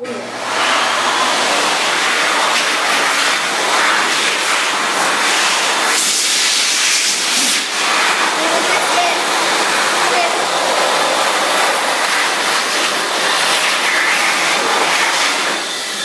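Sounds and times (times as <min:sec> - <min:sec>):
electric hand dryer blowing: 0:00.0 - 0:16.0.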